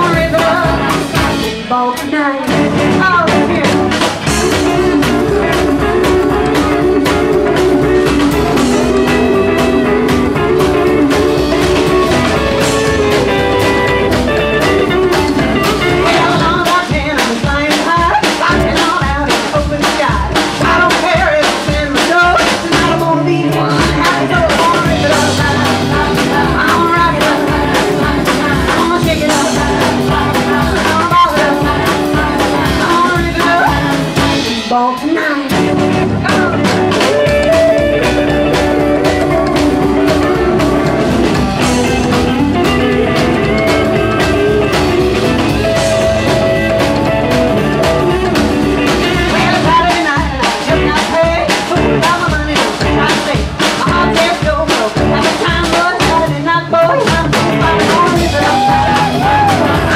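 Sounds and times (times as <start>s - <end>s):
rockabilly band playing: 0.0s - 59.9s.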